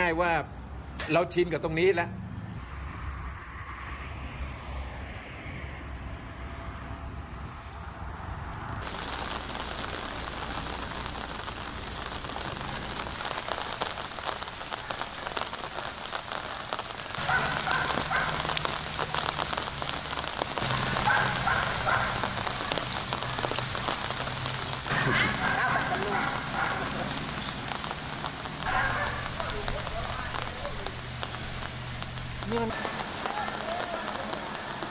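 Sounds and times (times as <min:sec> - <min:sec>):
heavy rain on water: 0:08.8 - 0:34.9.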